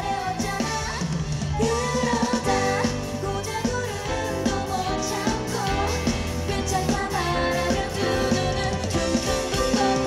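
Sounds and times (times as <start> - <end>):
drums: 0.0 - 10.0
electric guitar: 0.0 - 10.0
woman singing: 0.0 - 10.0
electronic keyboard: 2.4 - 10.0.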